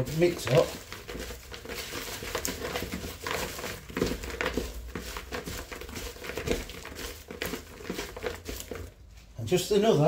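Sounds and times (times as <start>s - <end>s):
potato skins rustling in bowl: 0.0s - 10.0s.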